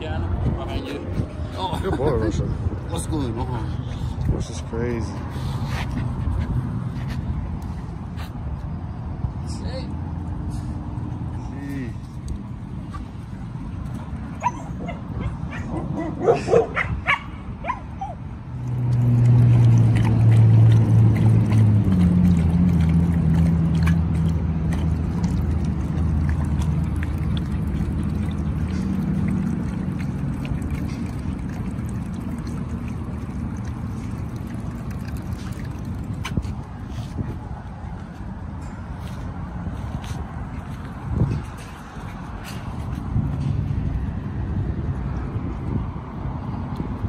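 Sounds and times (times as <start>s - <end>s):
dogs yipping and barking: 14.3s - 18.3s.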